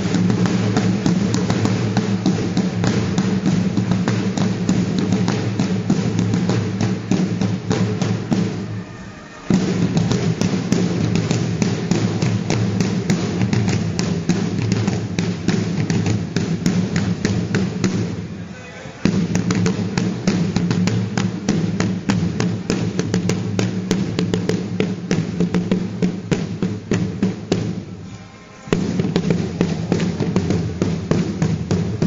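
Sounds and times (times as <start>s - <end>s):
side drums beating: 0.0s - 32.0s.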